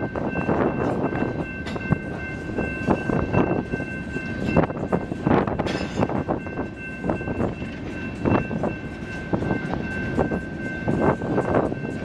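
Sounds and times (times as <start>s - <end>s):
low train rumble: 0.0s - 12.0s
train wheels clacking over joints: 0.3s - 12.0s.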